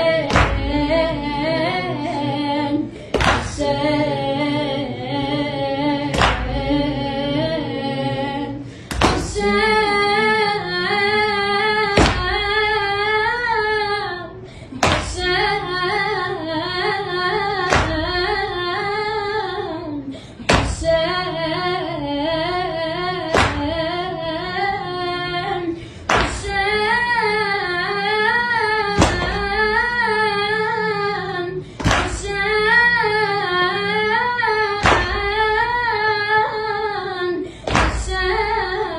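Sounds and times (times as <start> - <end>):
boy singing a lament chant: 0.0 - 38.9
sharp hand strikes: 31.8 - 32.2.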